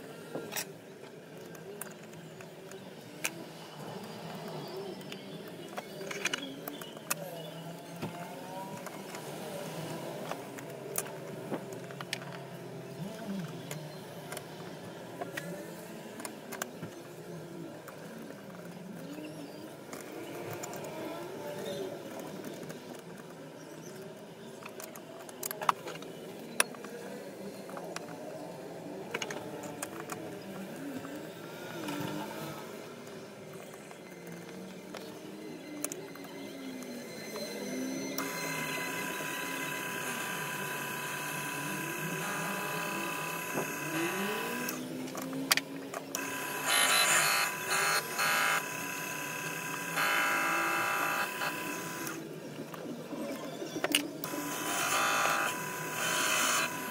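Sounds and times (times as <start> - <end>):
lathe motor running: 38.2 - 44.8, 46.2 - 52.3, 54.2 - 56.9
sharp clicks: 38.2 - 52.2, 53.8 - 56.9.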